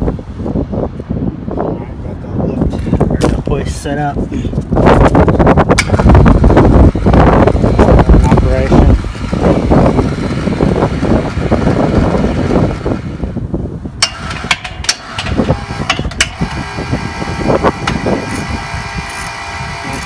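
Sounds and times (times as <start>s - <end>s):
dense rustling noise: 2.7s - 8.1s
electric hoist motor whine: 5.8s - 13.3s, 14.0s - 20.0s.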